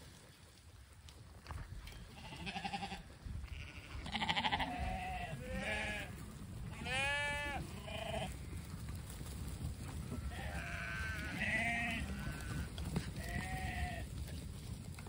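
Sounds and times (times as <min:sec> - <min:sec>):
sheep bleating: 0:02.1 - 0:08.4, 0:10.2 - 0:14.1.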